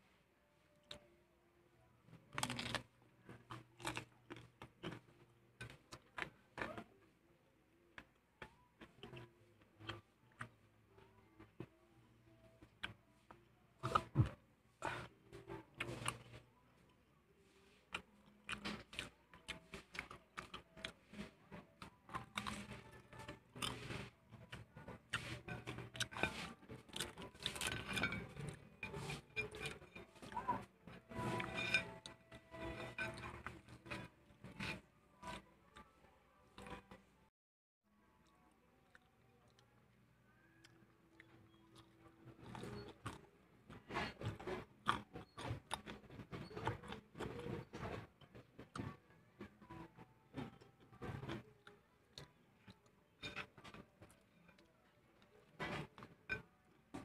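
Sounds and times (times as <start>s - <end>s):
crunchy chewing: 2.3s - 6.8s, 17.4s - 35.9s, 40.6s - 57.0s.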